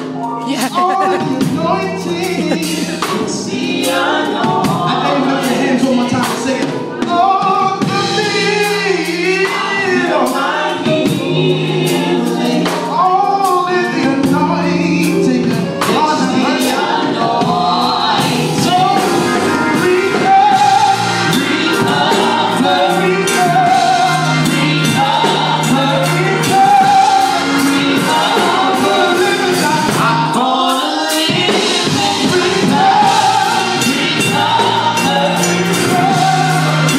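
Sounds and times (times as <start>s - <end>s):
accompaniment with steady beat: 0.0s - 36.9s
man singing lead: 0.3s - 36.9s
backing singers: 0.4s - 36.9s.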